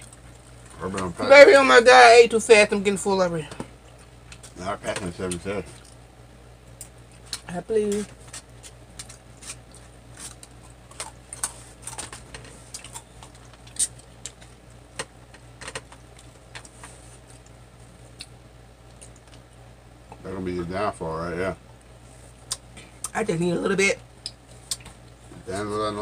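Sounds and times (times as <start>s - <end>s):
chewing: 0.0s - 0.8s, 5.2s - 6.0s, 8.2s - 14.6s, 15.8s - 20.2s, 24.2s - 25.2s
low steady hum: 0.0s - 26.0s.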